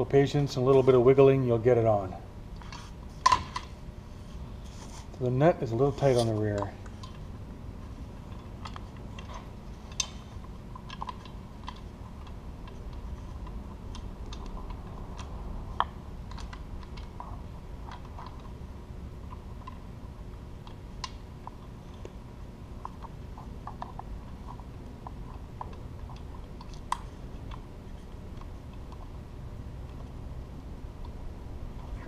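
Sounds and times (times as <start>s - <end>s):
steady low hum: 0.0s - 32.0s
metal parts clicking and tapping: 8.3s - 18.6s.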